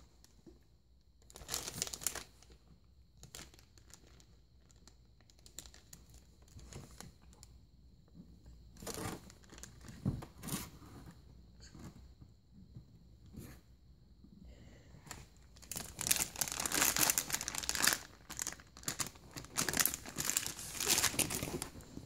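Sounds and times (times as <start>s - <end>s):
foil bag crinkling: 1.3s - 2.4s, 3.2s - 6.0s, 15.5s - 22.0s.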